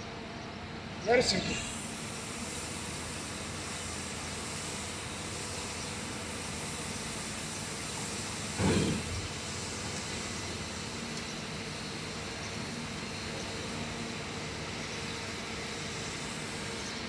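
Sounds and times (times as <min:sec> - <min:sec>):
engines and traffic hum: 0:06.1 - 0:17.0.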